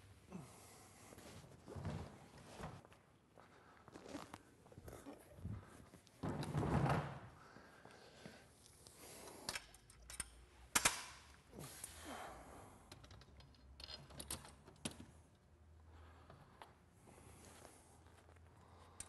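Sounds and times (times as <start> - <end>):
metal hardware clicking and knocking: 9.5 - 11.2, 12.9 - 15.1.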